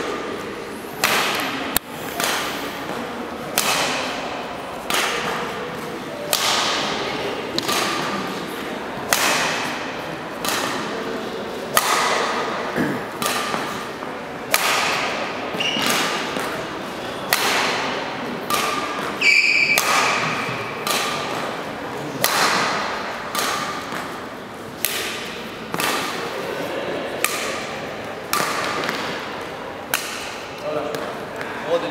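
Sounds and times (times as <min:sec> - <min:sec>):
racket striking shuttlecock: 0:01.0 - 0:31.2
shoe squeak: 0:15.6 - 0:15.9, 0:19.2 - 0:19.8.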